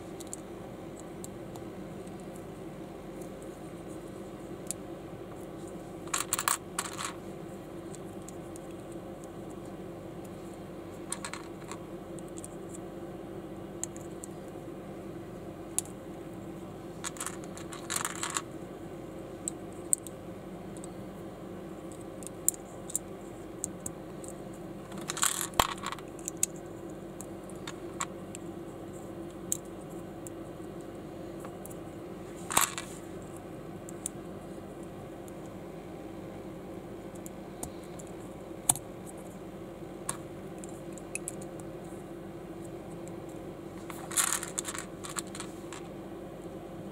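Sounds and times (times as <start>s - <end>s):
steady low hum: 0.0s - 46.9s
plastic bricks clicking together: 25.0s - 26.5s, 44.1s - 45.5s.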